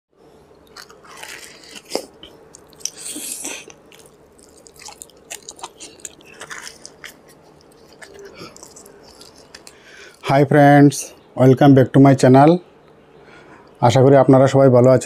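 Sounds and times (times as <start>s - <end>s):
man chewing crunchy fried food: 0.5s - 10.2s.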